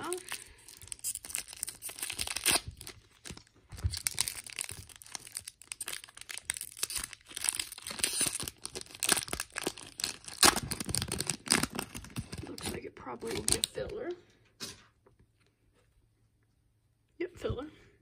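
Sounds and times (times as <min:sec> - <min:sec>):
foil wrapper tearing and crinkling: 0:00.0 - 0:13.9.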